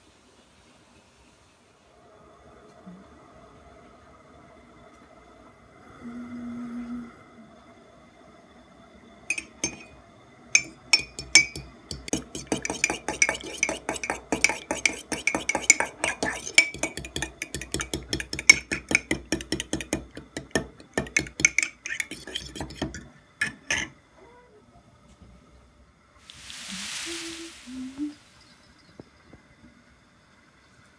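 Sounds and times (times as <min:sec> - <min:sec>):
fork whisking eggs in mug: 0:09.3 - 0:10.0, 0:10.6 - 0:23.9.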